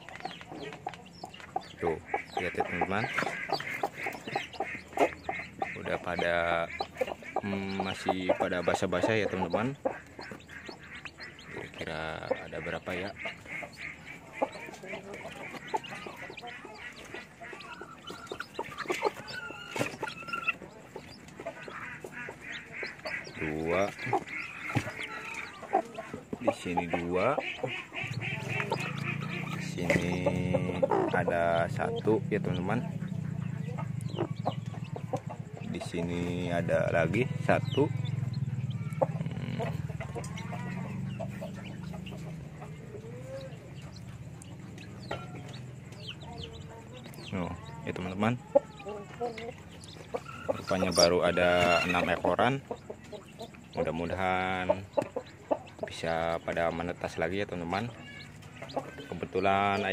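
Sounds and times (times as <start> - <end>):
chicks peeping: 0.0 - 59.9
hen calling: 0.0 - 59.9.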